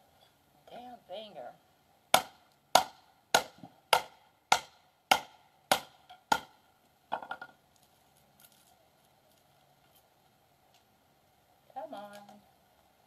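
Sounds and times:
axe chopping kindling: 2.1s - 7.6s.

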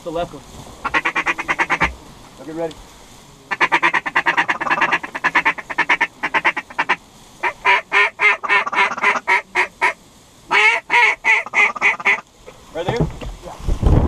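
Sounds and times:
duck call quacks: 0.8s - 1.9s, 3.5s - 12.2s.

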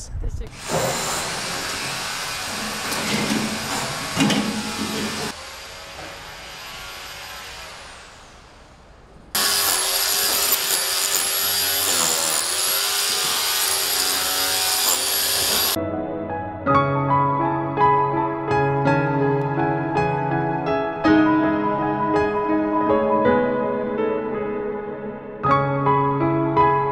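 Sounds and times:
clatter of work noise: 0.6s - 6.4s
rotary hammer drill whining: 0.6s - 8.2s, 9.4s - 15.8s.

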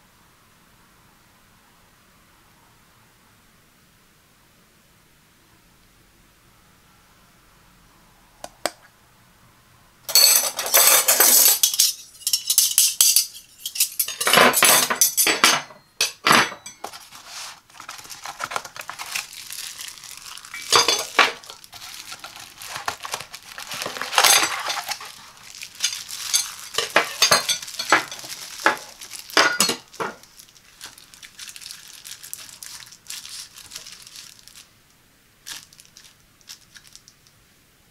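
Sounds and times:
metal knives clinking: 10.1s - 16.9s, 20.6s - 21.5s, 23.8s - 25.2s, 25.8s - 30.2s
plastic wrap crinkling: 16.7s - 34.8s, 35.4s - 37.3s.

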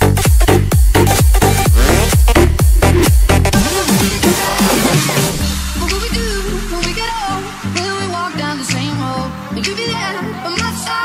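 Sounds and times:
electronic dance music: 1.6s - 2.3s, 3.6s - 11.0s.

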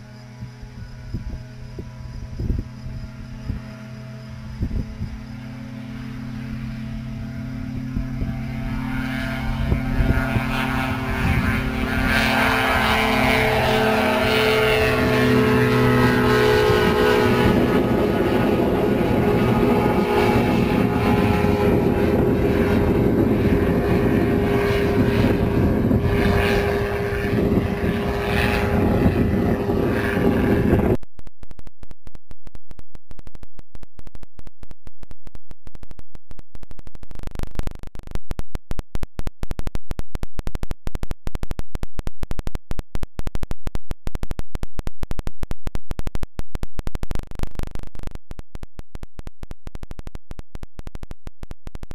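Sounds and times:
harsh rapidly pulsing buzz: 0.0s - 31.0s
ultralight aircraft engine drone: 0.0s - 31.0s.

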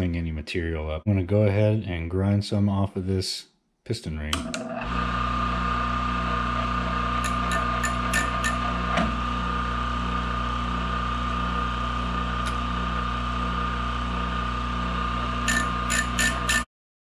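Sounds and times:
grinder motor whining: 4.4s - 16.7s
grinding wheel on metal: 4.5s - 13.0s, 14.1s - 16.7s.

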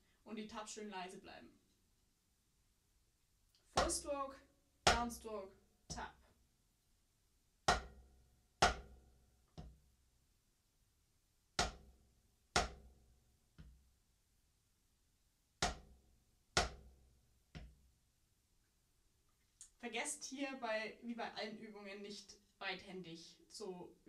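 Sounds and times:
drumstick hitting practice pad: 3.8s - 4.0s, 4.9s - 5.2s, 7.7s - 8.0s, 8.6s - 8.9s, 11.6s - 11.9s, 12.6s - 12.9s, 15.6s - 15.9s, 16.6s - 16.9s.

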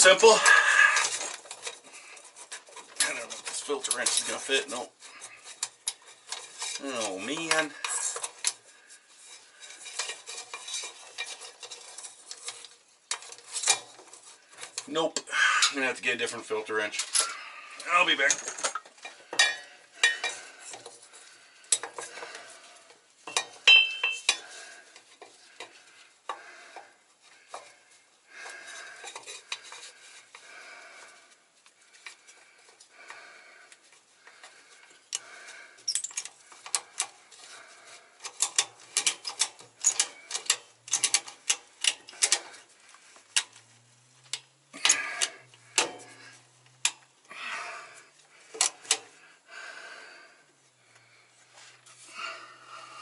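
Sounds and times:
metal wrench clinking and scraping: 0.0s - 15.9s, 16.9s - 26.4s, 28.7s - 30.0s, 35.8s - 47.0s.

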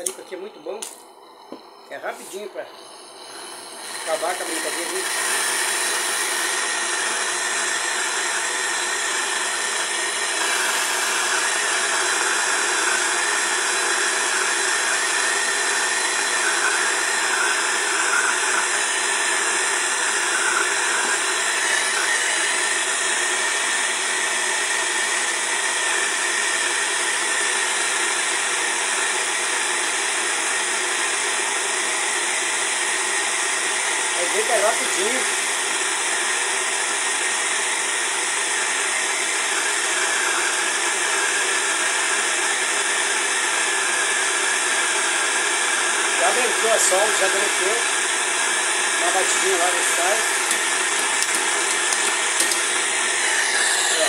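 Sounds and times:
gas torch hissing: 1.9s - 7.0s, 49.0s - 54.0s.

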